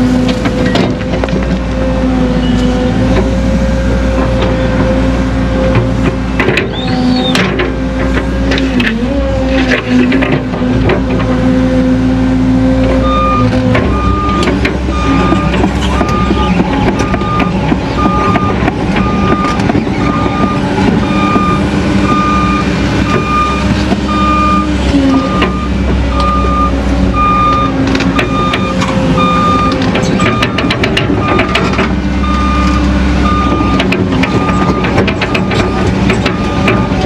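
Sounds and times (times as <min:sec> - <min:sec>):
diesel engine running: 0:00.0 - 0:37.0
alarm beeping: 0:13.0 - 0:31.6, 0:32.2 - 0:37.0.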